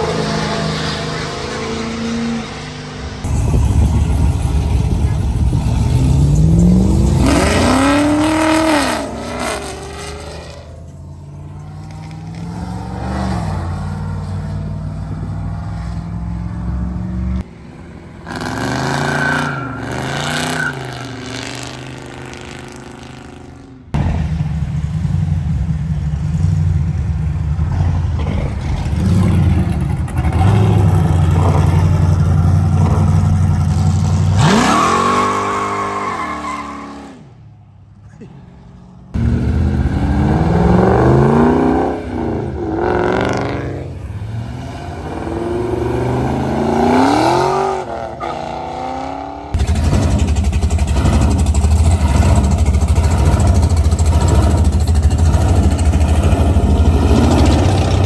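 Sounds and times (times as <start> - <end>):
engine revving: 0.0 - 10.8, 18.2 - 24.0, 28.2 - 36.0, 39.1 - 58.0
cars driving past: 0.0 - 58.0.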